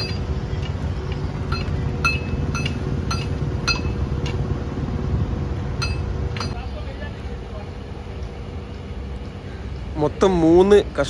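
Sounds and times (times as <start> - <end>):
metal striking metal: 0.0 - 4.4, 5.8 - 6.7
heavy machine engine rumbling: 0.0 - 11.0.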